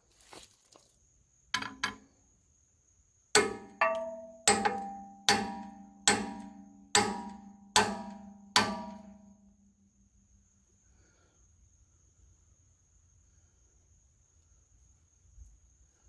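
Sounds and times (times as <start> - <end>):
hammer ringing on steel: 3.4 - 9.3.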